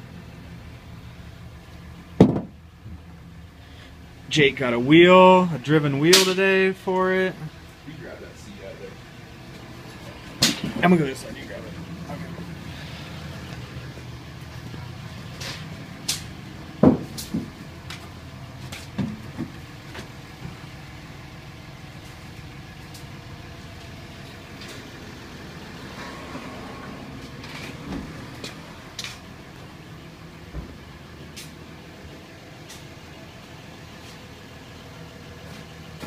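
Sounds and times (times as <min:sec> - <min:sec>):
seat knocking and clunking: 0:02.2 - 0:02.6.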